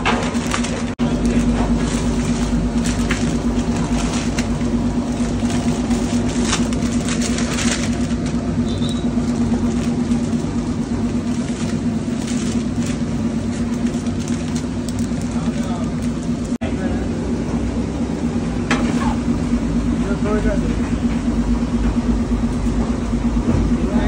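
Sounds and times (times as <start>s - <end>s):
plastic bag crinkling: 0.0s - 16.6s
machine hum with low drone: 0.0s - 24.0s.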